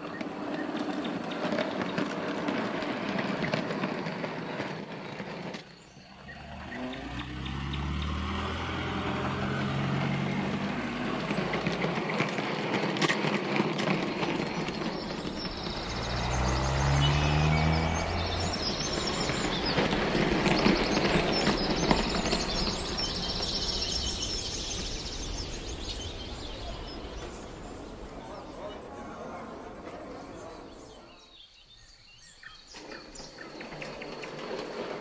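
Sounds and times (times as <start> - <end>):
model train motor hum and rattle: 0.0 - 7.7, 9.2 - 17.0, 18.0 - 28.5, 32.4 - 35.0
car engine: 6.2 - 28.7.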